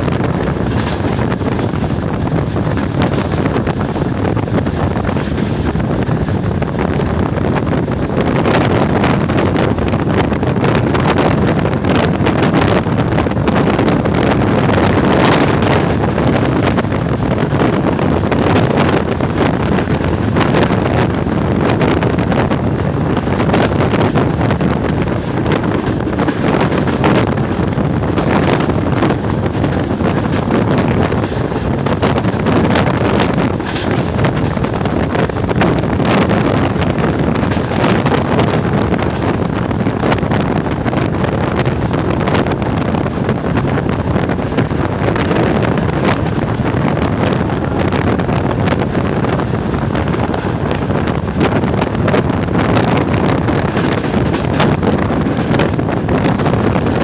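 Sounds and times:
train wheels rumbling on track: 0.0s - 57.0s
wind buffeting microphone: 0.0s - 57.0s.

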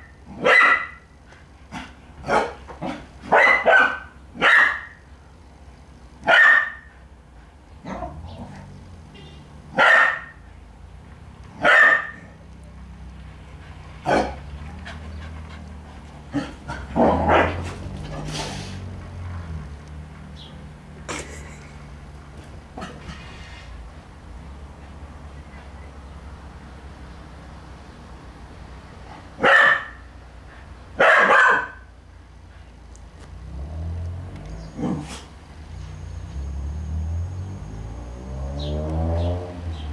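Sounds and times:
puppy barking: 0.4s - 1.1s, 1.8s - 5.0s, 6.2s - 6.9s, 9.7s - 10.5s, 11.6s - 12.4s, 14.0s - 15.4s, 16.3s - 18.4s, 29.4s - 30.1s, 31.0s - 31.9s.

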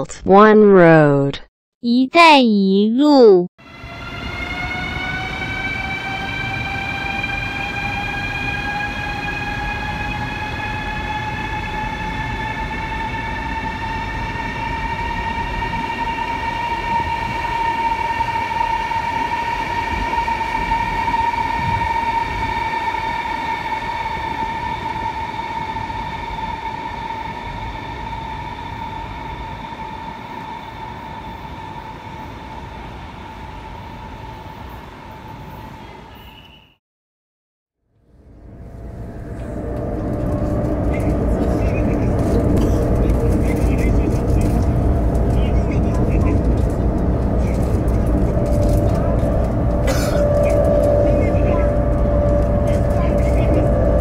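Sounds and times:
electric train motor whine: 3.6s - 35.8s, 38.0s - 54.0s
train rumble: 38.1s - 54.0s.

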